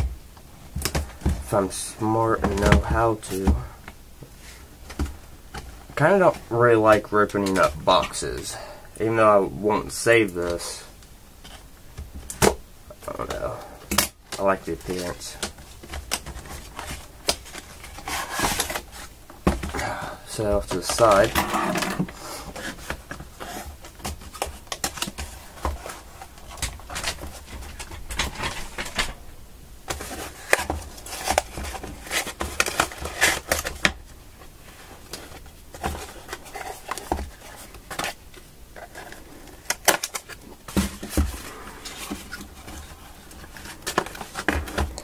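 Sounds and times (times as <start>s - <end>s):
cardboard rustling and scraping: 0.7s - 8.6s, 14.3s - 29.2s, 29.8s - 45.0s.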